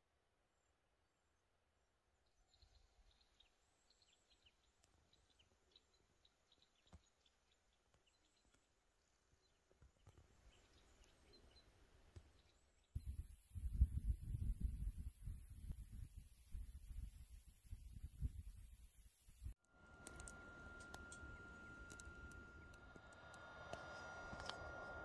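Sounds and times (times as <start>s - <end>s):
small birds chirping: 2.3s - 23.3s
faint click: 20.0s - 24.7s.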